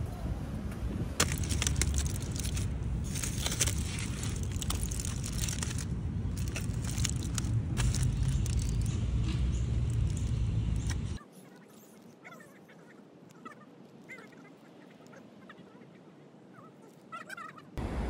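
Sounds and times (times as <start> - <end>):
aluminium foil crinkling: 1.2 - 8.9.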